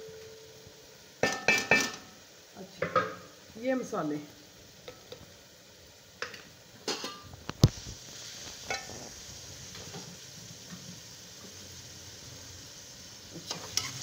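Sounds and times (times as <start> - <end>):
food sizzling in pan: 0.0 - 14.0
spoon knocking on cooking pot: 1.2 - 2.0.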